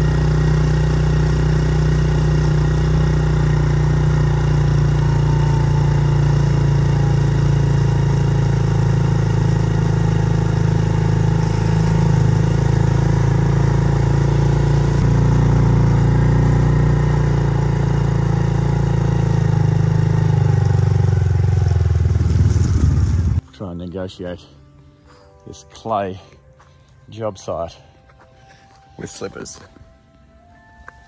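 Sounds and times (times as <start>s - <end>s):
small engine running at low revs: 0.0s - 23.4s.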